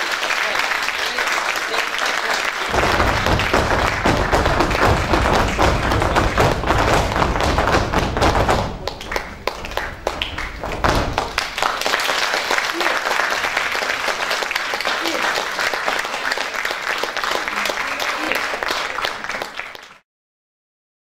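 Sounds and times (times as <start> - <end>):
audience applause: 0.0 - 20.0
shoes stamping on stage floor: 2.7 - 12.1.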